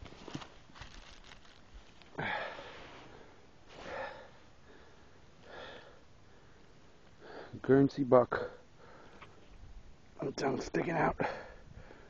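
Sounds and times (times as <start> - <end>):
man breathing hard: 2.2 - 7.6, 8.8 - 9.3, 11.2 - 12.0.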